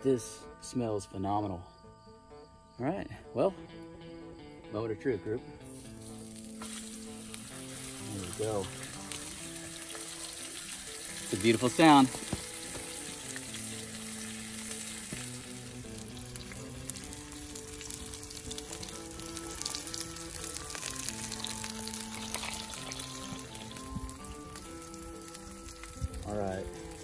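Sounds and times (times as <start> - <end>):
soft background music: 0.0 - 27.0
steak sizzling with pops: 5.6 - 27.0.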